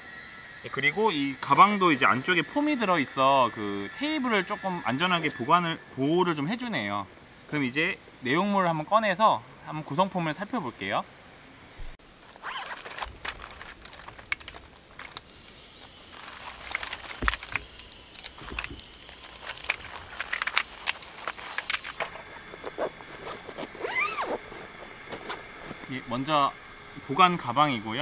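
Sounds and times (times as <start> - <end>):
fabric bag rustling: 12.0 - 26.1
metal parts clinking and knocking: 12.3 - 22.3.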